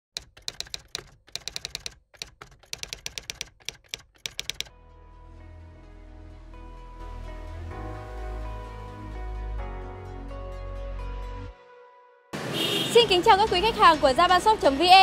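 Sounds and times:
rapid keyboard key clicks: 0.1 - 4.7
soft background music: 4.7 - 12.3, 13.1 - 15.0.

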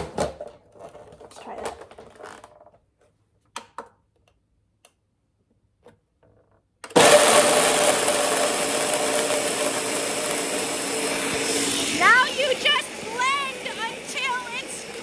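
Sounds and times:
blender grinding nuts: 6.9 - 15.0.

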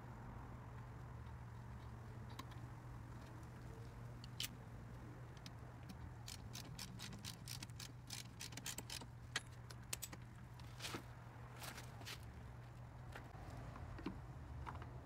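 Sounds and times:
hand tool metallic clicks: 5.4 - 10.2.

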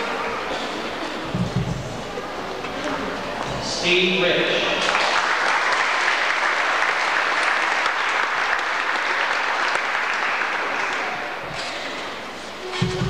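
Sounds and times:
audience clapping: 4.6 - 11.6.

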